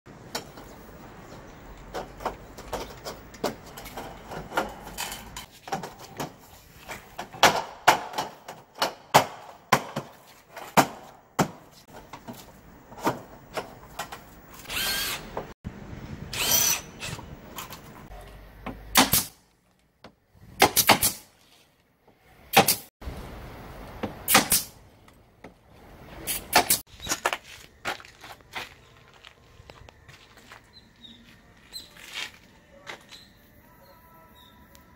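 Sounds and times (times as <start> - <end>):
cordless drill driving screws: 14.6 - 15.3, 16.3 - 17.2.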